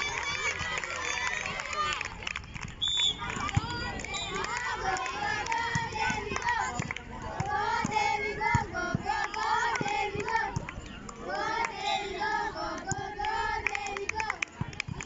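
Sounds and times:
girls shouting and cheering: 0:00.0 - 0:02.1.

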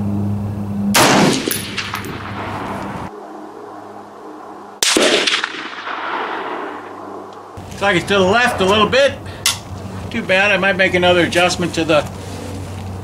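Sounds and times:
rifle shots: 0:01.0 - 0:03.0, 0:04.8 - 0:07.2.

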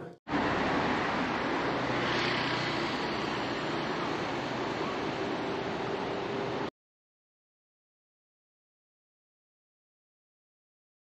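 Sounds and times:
steady rushing noise: 0:00.3 - 0:06.7.

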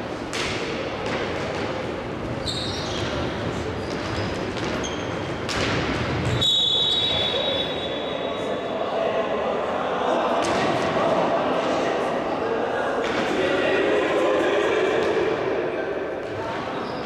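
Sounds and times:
crowd and hall noise: 0:00.0 - 0:17.0
shoe squeaks: 0:02.4 - 0:05.4, 0:06.3 - 0:08.4, 0:16.8 - 0:17.0
referee's whistle: 0:06.3 - 0:08.4.

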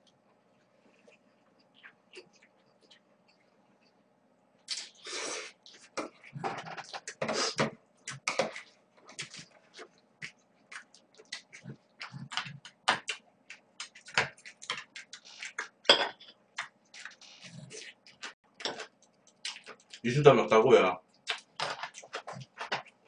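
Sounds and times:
wet chewing with lip smacks: 0:08.0 - 0:15.8, 0:16.5 - 0:20.0.

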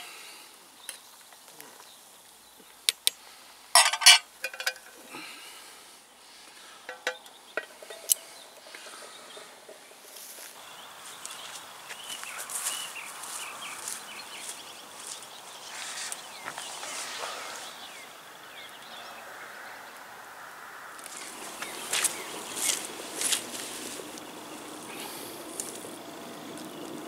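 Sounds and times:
birds calling: 0:00.0 - 0:27.0
insects chirping: 0:00.0 - 0:27.0
spoon clinking on metal pot: 0:03.8 - 0:04.9, 0:06.9 - 0:09.4.

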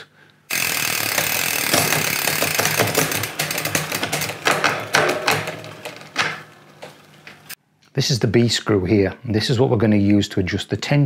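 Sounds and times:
bicycle chain clicking through gears: 0:00.5 - 0:07.1.

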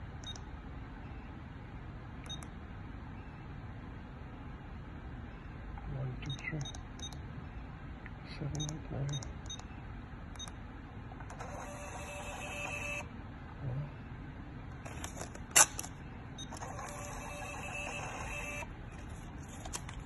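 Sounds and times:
thermal receipt printer printing: 0:11.2 - 0:13.1, 0:16.4 - 0:19.8.

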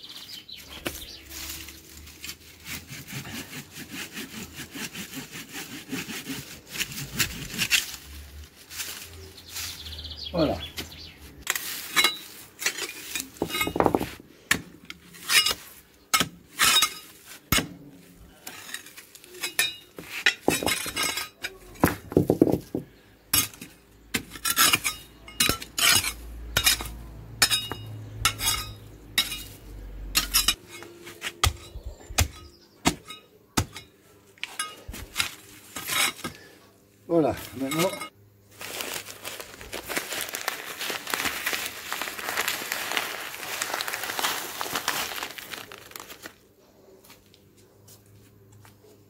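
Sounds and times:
blade clinking on stones: 0:11.5 - 0:14.1, 0:15.3 - 0:17.2, 0:18.5 - 0:22.4, 0:23.4 - 0:36.3, 0:37.3 - 0:38.2.

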